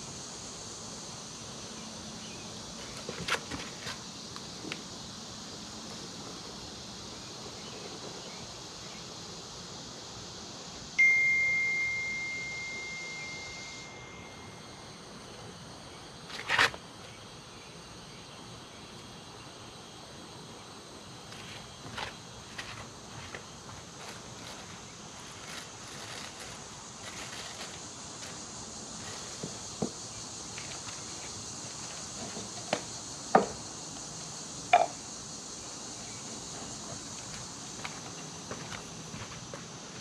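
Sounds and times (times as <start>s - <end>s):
evening insect chorus: 0.0s - 40.0s
clear ringing tone: 11.0s - 14.9s.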